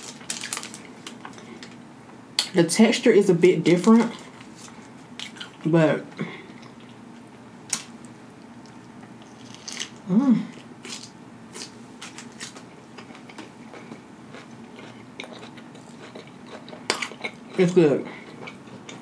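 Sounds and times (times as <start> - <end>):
person humming mm: 10.0 - 10.6
wet chewing: 12.3 - 19.0.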